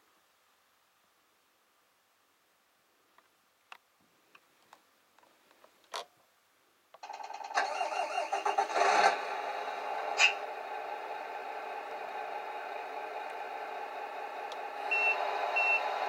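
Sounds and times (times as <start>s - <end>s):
simulated diesel engine from speaker: 7.0s - 16.0s.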